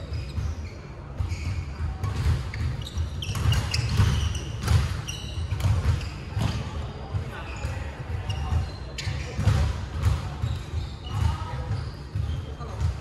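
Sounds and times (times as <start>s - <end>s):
shoes squeaking on wooden floor: 0.1s - 6.7s.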